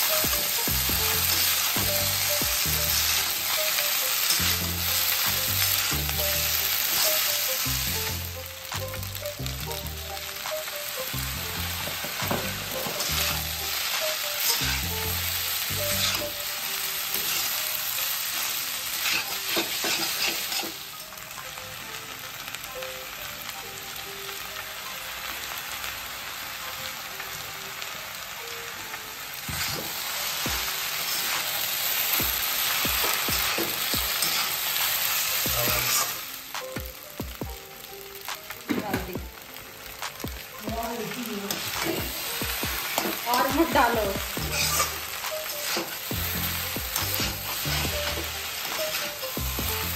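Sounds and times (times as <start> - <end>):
noodles sizzling in a wok: 0.0 - 49.9
spatula scraping a wok: 18.4 - 20.9, 29.5 - 30.0, 30.6 - 36.2, 41.5 - 49.9.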